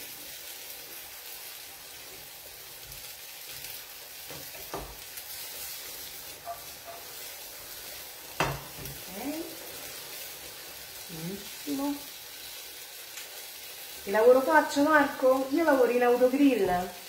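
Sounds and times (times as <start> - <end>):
risotto sizzling in a frying pan: 0.0 - 17.0
utensil knocking against pan: 8.4 - 9.0.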